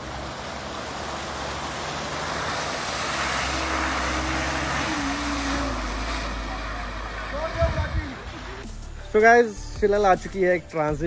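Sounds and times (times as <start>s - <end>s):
water splashing around tyres: 0.0s - 8.6s
car engine running under load: 0.0s - 8.7s.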